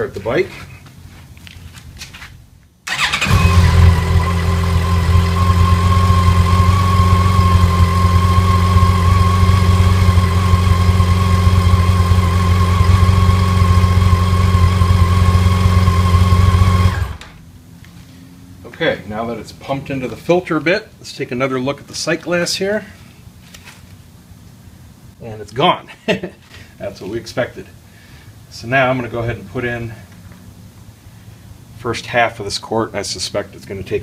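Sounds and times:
motorcycle engine starting and idling: 0:02.9 - 0:17.5.

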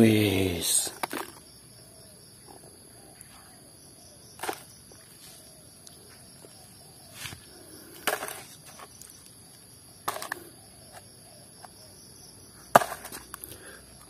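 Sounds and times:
plastic toys clattering into basket: 0:00.8 - 0:01.4, 0:10.0 - 0:10.4.

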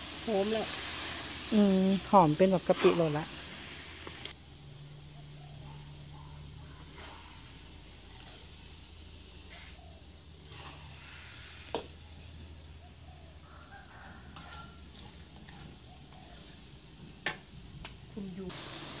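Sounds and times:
spatula stirring paste in wok: 0:06.8 - 0:12.4, 0:14.2 - 0:17.1.

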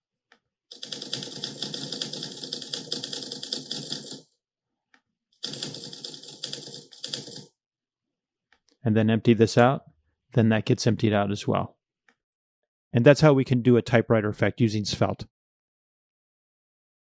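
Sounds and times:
typewriter keystrokes: 0:00.7 - 0:04.2, 0:05.4 - 0:07.5.

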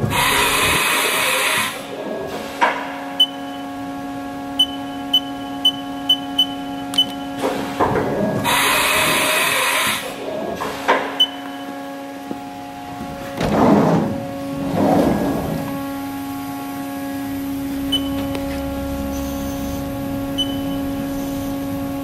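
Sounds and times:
machining centre whine: 0:00.0 - 0:22.0
coolant spray hissing: 0:08.5 - 0:10.1, 0:19.0 - 0:20.0
short high beeps: 0:17.9 - 0:18.2, 0:20.4 - 0:20.8.

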